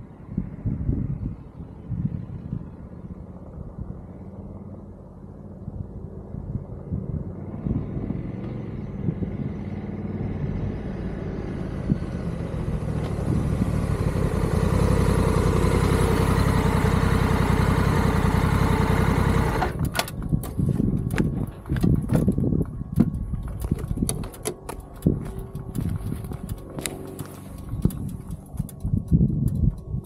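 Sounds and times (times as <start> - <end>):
wind rush: 0.0 - 16.4, 19.6 - 30.0
motorcycle engine: 7.2 - 30.0
camera knocking and clattering: 19.9 - 30.0.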